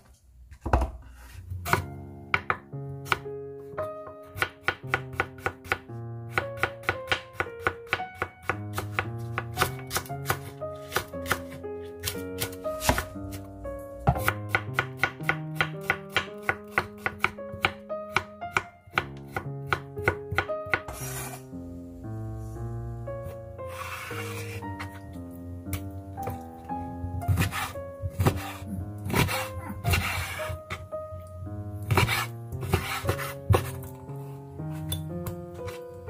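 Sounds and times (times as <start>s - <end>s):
background music with plucked notes: 1.6s - 36.0s
knife chopping on cutting board: 4.3s - 13.1s, 14.1s - 21.4s, 27.3s - 30.8s, 31.9s - 33.9s.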